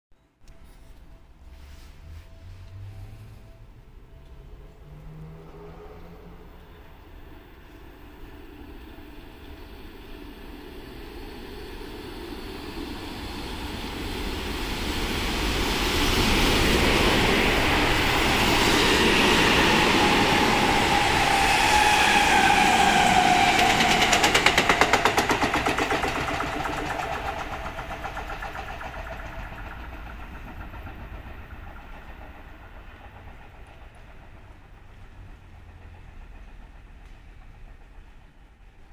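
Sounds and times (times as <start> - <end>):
electric train passing: 0.2 - 38.9
train motor whine: 8.0 - 38.8
train wheel clacks: 8.4 - 38.9.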